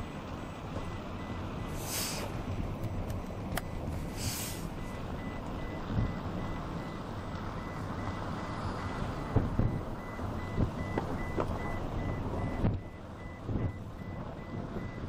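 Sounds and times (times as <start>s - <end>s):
wind rumbling on microphone: 0.0s - 15.0s
high electronic beeps: 4.8s - 15.0s.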